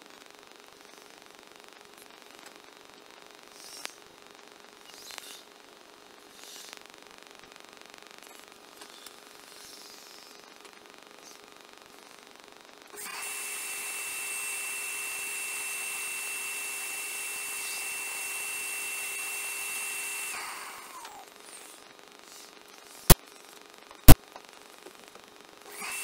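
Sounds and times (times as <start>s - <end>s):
vacuum motor whining: 13.0s - 21.3s, 25.7s - 26.0s.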